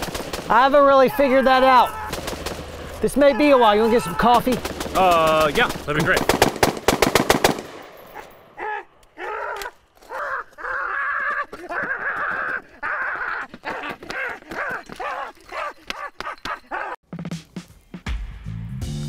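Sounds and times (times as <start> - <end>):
man shrieking: 0.9 - 2.2, 3.0 - 5.3, 8.6 - 17.0.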